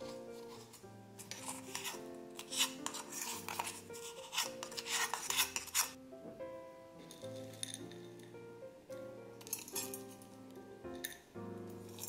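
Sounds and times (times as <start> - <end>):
wooden spatula scraping metal cup: 0.0 - 6.0, 9.4 - 10.2
soft background music: 0.0 - 12.0.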